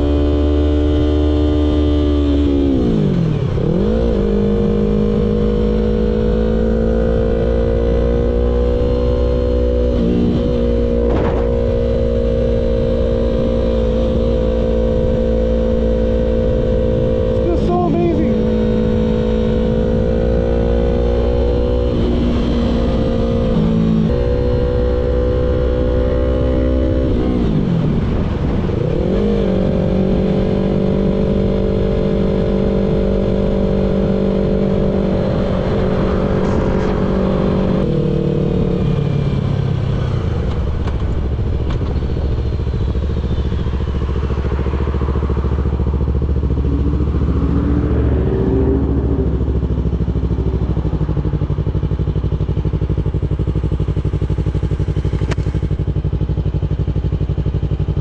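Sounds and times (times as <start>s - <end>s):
motorcycle engine running: 0.0s - 58.0s.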